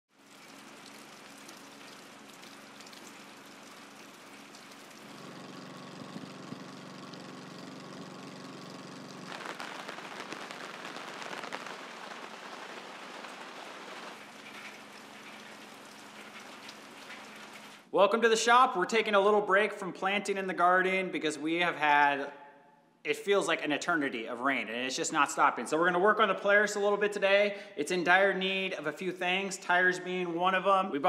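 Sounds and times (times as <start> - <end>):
rain falling: 0.1 - 17.9
low steady hum: 0.2 - 18.0.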